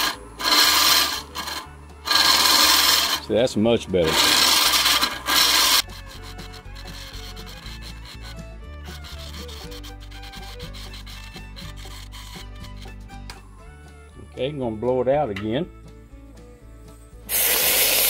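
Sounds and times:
tool rasping on spinning wood: 0.0 - 13.0
lathe humming: 0.0 - 13.1.

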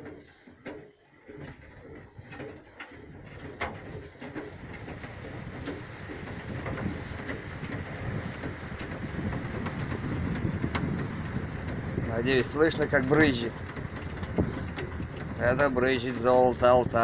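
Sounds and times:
clicks and knocks: 0.0 - 11.8.

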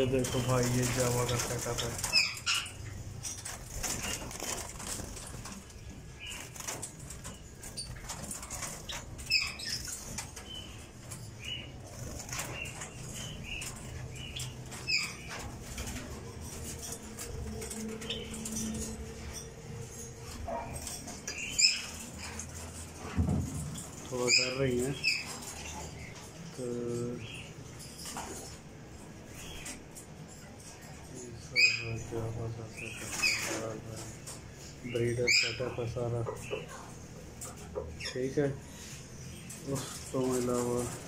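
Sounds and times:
birds fluttering wings: 0.0 - 26.2.

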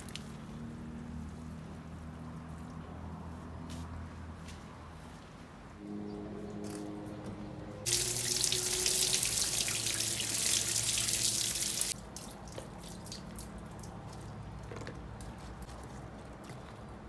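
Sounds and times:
tap water running onto vegetables: 7.9 - 12.0
water dripping: 7.9 - 14.4.

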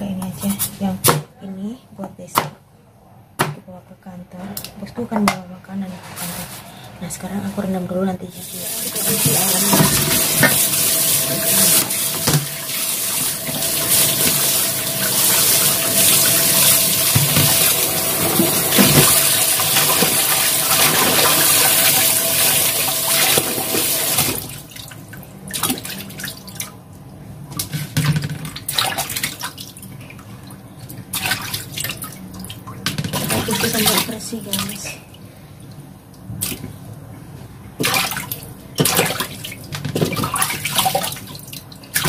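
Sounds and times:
water splashing and sloshing: 8.4 - 36.9, 37.7 - 42.0
tap running into steel bowl: 9.0 - 12.6.

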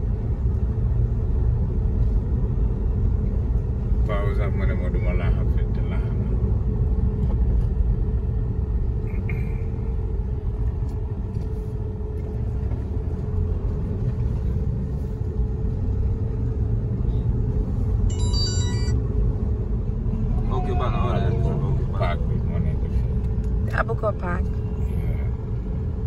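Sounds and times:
car engine and road rumble: 0.0 - 26.0
brief high-pitched tone: 18.1 - 19.0.

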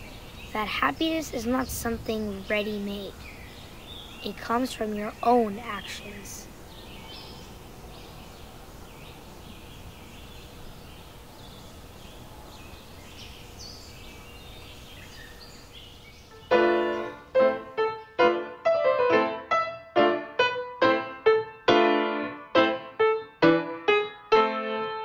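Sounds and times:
birds chirping: 0.0 - 18.3
outdoor hiss: 0.0 - 19.3
upright piano playing: 16.3 - 25.0.

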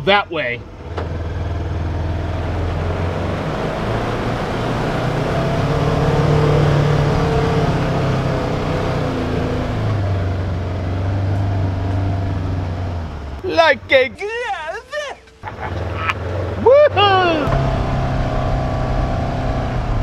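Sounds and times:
off-road vehicle engine revving: 0.6 - 14.1, 15.2 - 20.0.

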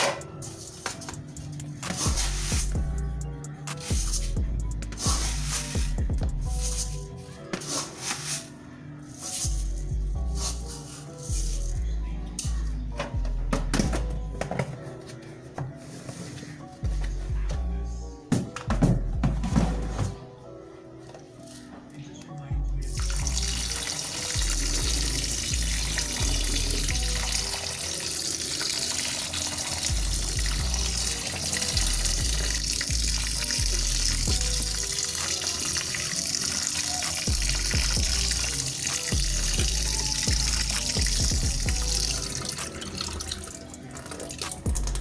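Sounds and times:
background music with bass: 0.0 - 45.0
tap water running into sink: 23.0 - 45.0.

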